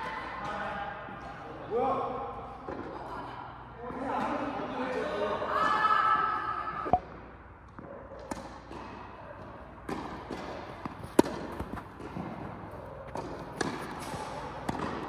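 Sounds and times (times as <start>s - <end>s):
tennis balls struck by rackets: 2.6s - 3.0s, 6.9s - 15.0s
balls bouncing on hard court: 6.9s - 15.0s.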